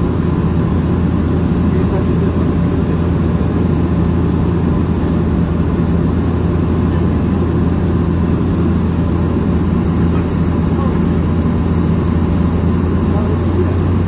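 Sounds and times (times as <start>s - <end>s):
airliner cabin engine drone: 0.0s - 14.0s.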